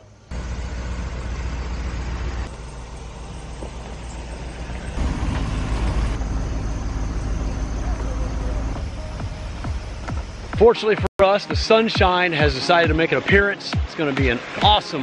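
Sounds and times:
truck engine rumbling: 0:00.0 - 0:10.7.

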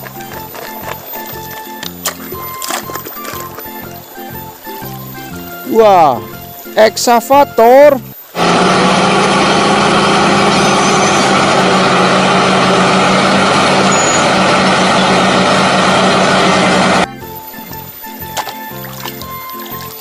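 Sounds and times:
diesel engine running: 0:00.0 - 0:05.5, 0:08.1 - 0:18.0.

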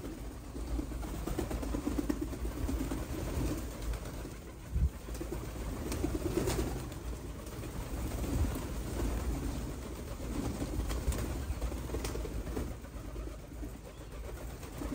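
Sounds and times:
pigeons cooing: 0:00.0 - 0:14.9
wings flapping: 0:00.0 - 0:14.9.

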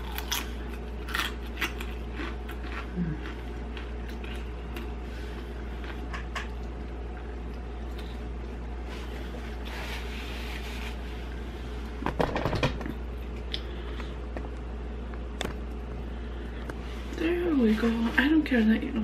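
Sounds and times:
chips crunching while chewing: 0:00.0 - 0:05.0
steady low hum: 0:00.0 - 0:19.0.

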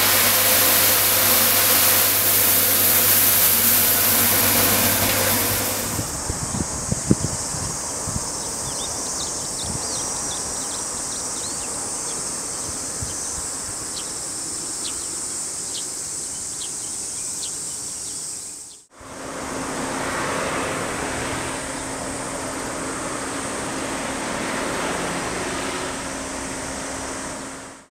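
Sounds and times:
high-pitched insect drone: 0:00.0 - 0:18.8
insect chirps: 0:00.0 - 0:18.9.

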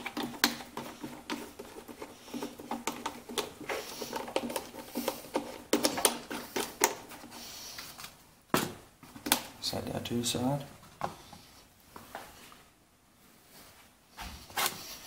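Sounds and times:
hard plastic cover clicking and rattling: 0:00.0 - 0:07.2.

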